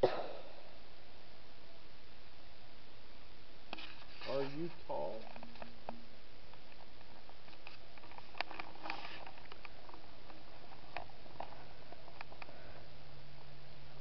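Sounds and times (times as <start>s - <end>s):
faint low hum: 0.0s - 14.0s
steady hiss: 0.0s - 14.0s
small clicks and rustles: 3.7s - 12.6s.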